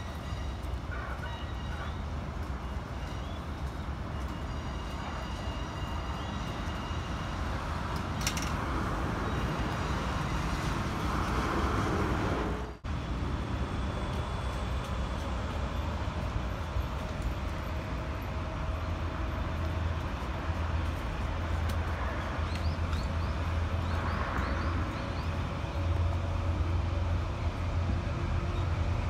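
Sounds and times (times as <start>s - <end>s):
distant diesel locomotive rumble: 0.0s - 29.0s
road traffic noise: 0.0s - 29.0s.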